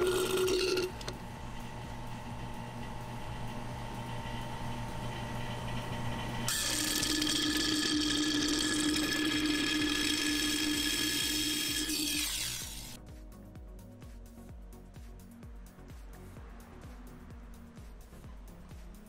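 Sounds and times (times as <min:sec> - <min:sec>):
suction pump drawing fluid: 0:00.0 - 0:01.2, 0:06.5 - 0:13.0
pump hissing and whining: 0:00.0 - 0:02.4, 0:04.0 - 0:13.0.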